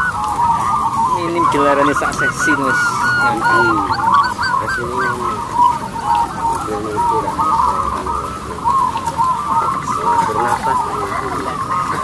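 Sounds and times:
doves cooing: 0.0 - 12.0.

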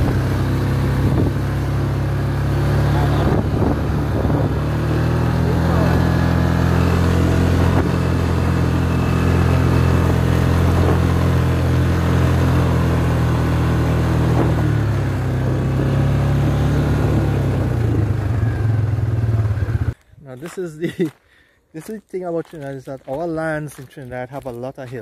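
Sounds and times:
atv engine running: 0.0 - 20.0.

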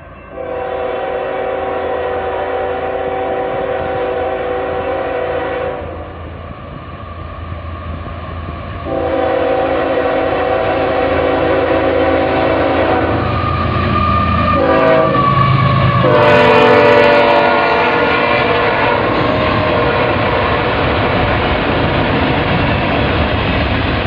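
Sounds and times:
train rumbling: 0.0 - 24.0
locomotive air horn blasts: 0.2 - 6.1, 8.8 - 13.3, 14.5 - 20.7.

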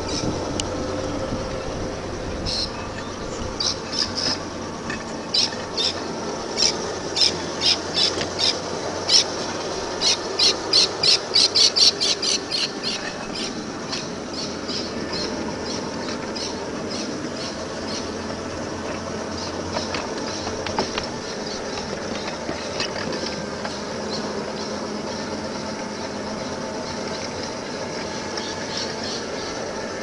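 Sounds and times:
model tram rumbling on track: 0.0 - 30.0.

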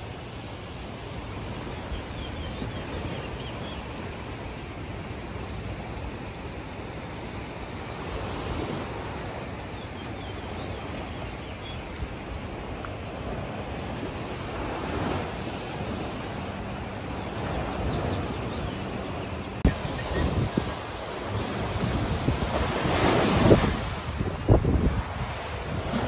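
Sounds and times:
ocean waves: 0.0 - 26.0
wind on microphone: 11.0 - 26.0.

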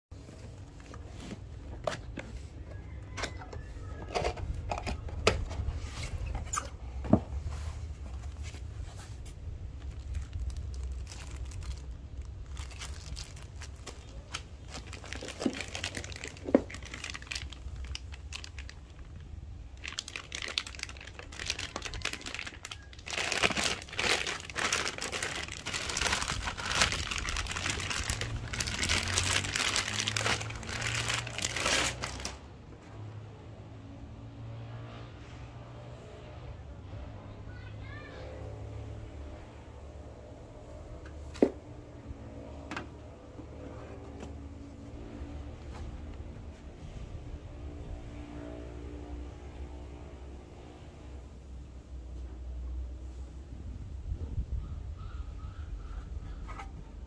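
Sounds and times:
cardboard packaging being handled: 7.4 - 32.4
plastic wrap crinkling: 9.4 - 32.4.

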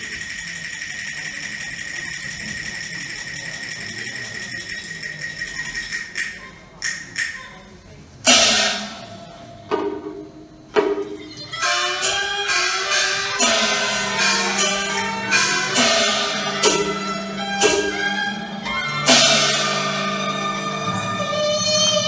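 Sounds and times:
percussion strikes: 0.0 - 7.6, 8.2 - 22.0
string and wind melody: 8.9 - 22.0.

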